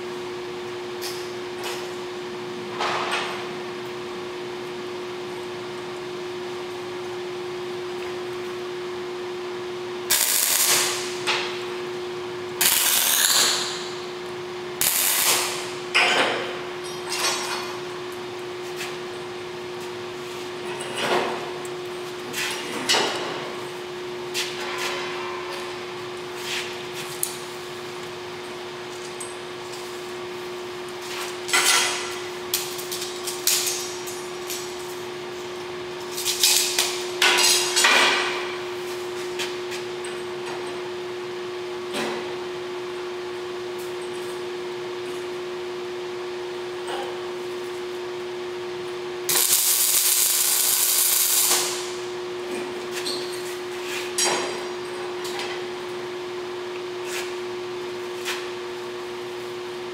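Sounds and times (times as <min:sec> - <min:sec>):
steady hum: 0:03.4 - 0:20.7, 0:47.4 - 0:53.0.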